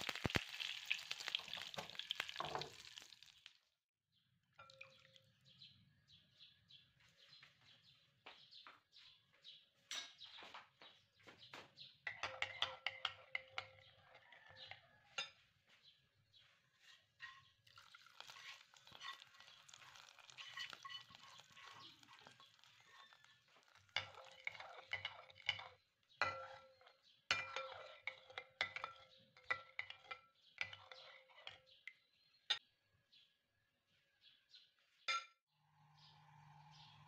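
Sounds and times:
spoon clinking against ceramic bowl: 12.0 - 15.4, 17.2 - 31.9
spoon scraping in bowl: 16.9 - 31.6.

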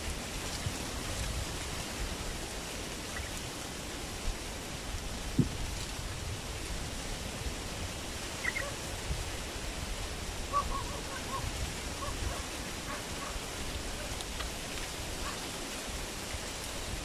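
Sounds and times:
steady rushing hiss: 0.0 - 17.0
bird chirps: 8.4 - 8.7.

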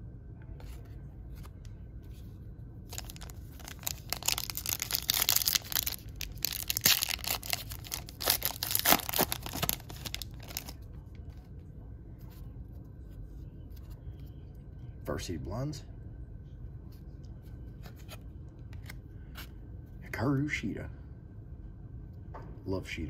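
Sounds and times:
foil wrapper tearing and crinkling: 2.9 - 10.8.

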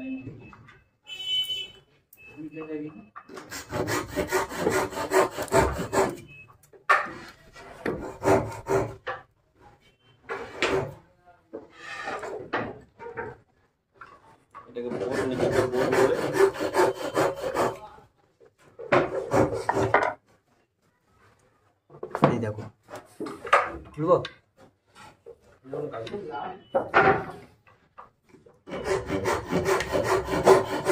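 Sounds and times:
wood being sanded by hand: 3.5 - 6.2, 8.0 - 8.9, 14.9 - 17.8, 28.7 - 30.9.

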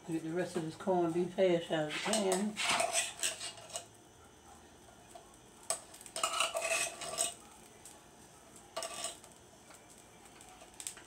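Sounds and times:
fork scraping inside tin can: 1.9 - 3.9, 6.2 - 7.4.

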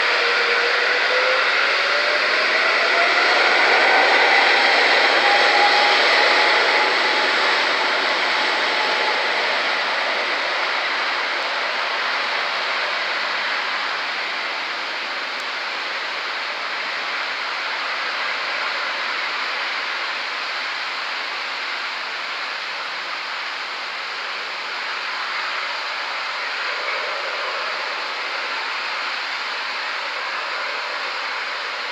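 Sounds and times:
whining fan tone: 0.0 - 20.1
jet engines roaring at takeoff: 0.0 - 31.9.

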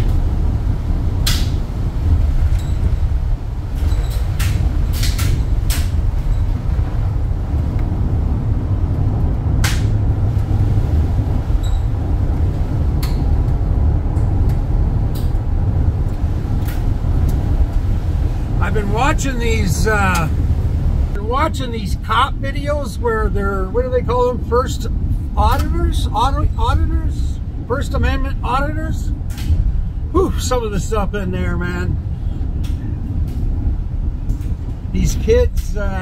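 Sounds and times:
truck rumbling on slushy road: 0.0 - 36.0
sharp ticks and knocks: 1.2 - 1.6, 3.8 - 6.6, 9.6 - 10.0.

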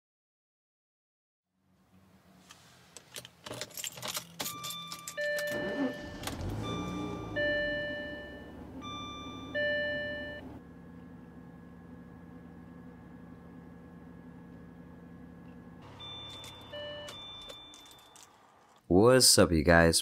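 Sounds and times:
car engine starting and idling: 1.6 - 18.8
keys jangling: 3.0 - 6.4, 16.1 - 18.8
key going into ignition: 3.0 - 6.9, 15.8 - 18.8
two-note warning chime: 4.5 - 10.5, 15.8 - 18.1.

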